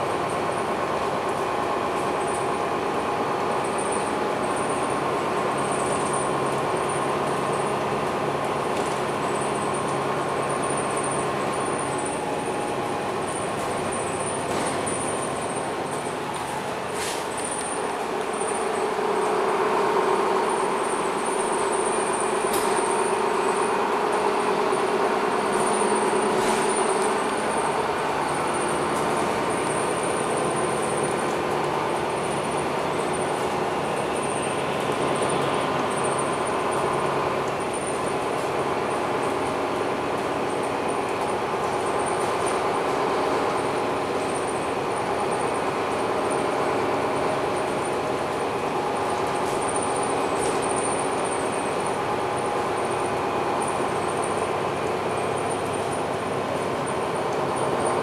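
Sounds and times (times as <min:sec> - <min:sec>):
bus engine hum: 0:00.0 - 0:58.0
road noise: 0:06.4 - 0:21.5, 0:22.2 - 0:40.8.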